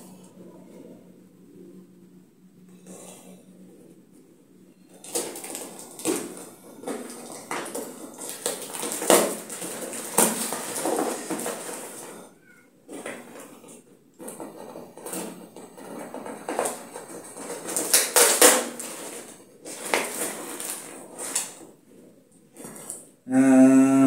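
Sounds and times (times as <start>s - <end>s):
packing tape ripping: 5.0s - 12.1s, 16.5s - 21.7s
cardboard box crackling: 5.0s - 12.3s, 14.5s - 21.8s.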